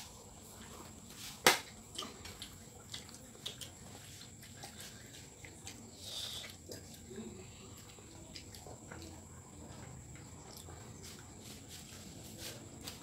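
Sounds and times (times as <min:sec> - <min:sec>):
wet mouth chewing: 0:01.7 - 0:11.4.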